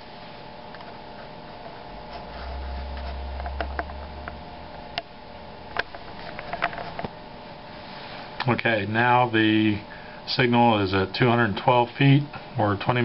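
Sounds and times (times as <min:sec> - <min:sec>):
machinery humming: 0:00.0 - 0:10.5.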